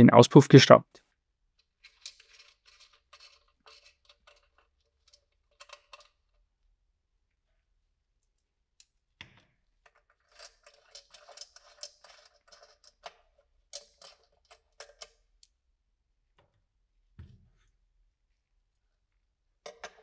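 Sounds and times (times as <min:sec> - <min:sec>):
small metallic clicks and scrapes: 0:01.5 - 0:06.4, 0:09.8 - 0:15.6.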